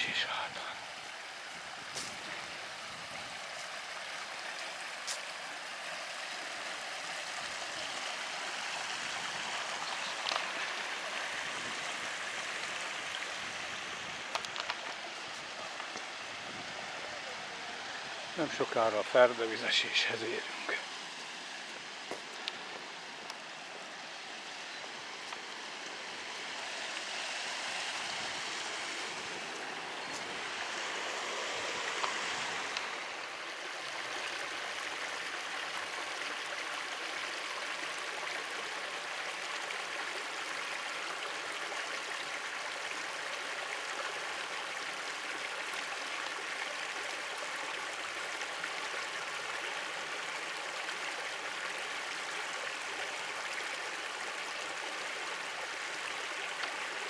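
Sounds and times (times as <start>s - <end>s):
stream rushing over rocks: 0.0s - 57.0s.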